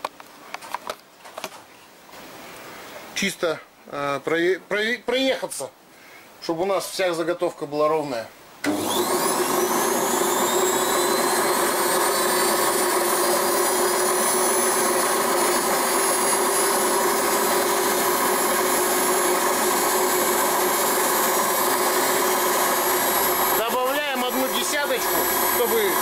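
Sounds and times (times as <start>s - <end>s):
lathe motor whine: 8.6s - 26.0s.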